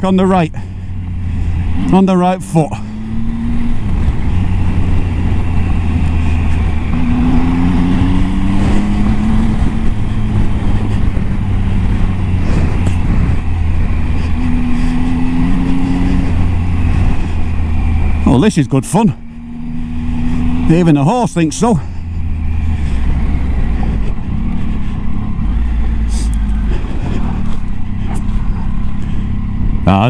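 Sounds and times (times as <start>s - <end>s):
motorcycle engine pulling at low speed: 0.0s - 30.0s
wind noise: 2.8s - 29.9s
tyres on gravel: 8.5s - 30.0s.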